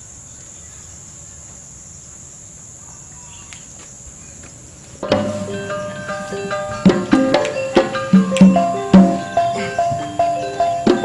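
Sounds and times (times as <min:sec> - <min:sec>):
crickets chirping: 0:00.0 - 0:11.0
music with percussion: 0:05.0 - 0:11.0.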